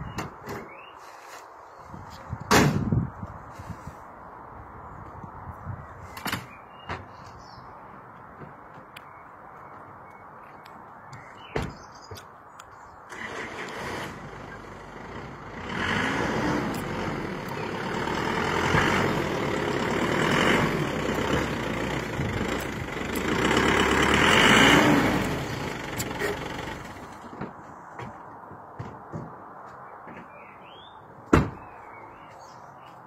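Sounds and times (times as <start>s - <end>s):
truck engine revving: 13.1s - 27.2s.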